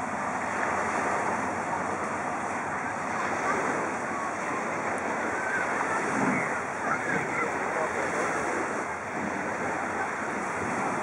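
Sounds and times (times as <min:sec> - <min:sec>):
surf washing onto beach: 0:00.0 - 0:11.0
wind on microphone: 0:00.0 - 0:11.0
faint voices: 0:02.0 - 0:11.0.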